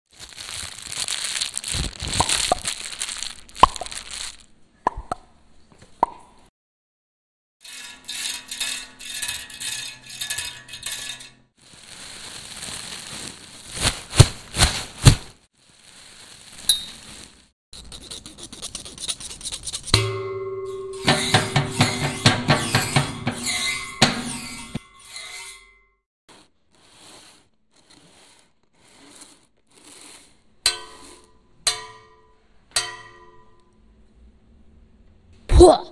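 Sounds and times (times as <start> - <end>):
crackly rustling noise: 0.1 - 4.5, 11.0 - 17.9.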